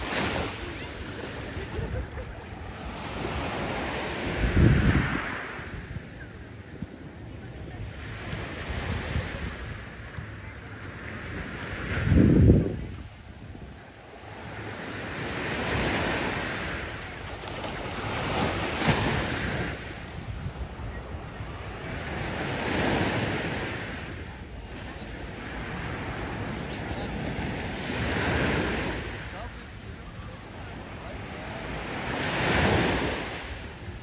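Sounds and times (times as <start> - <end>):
wind on microphone: 0.0 - 14.0, 18.0 - 24.4
small waves breaking on beach: 0.0 - 34.0.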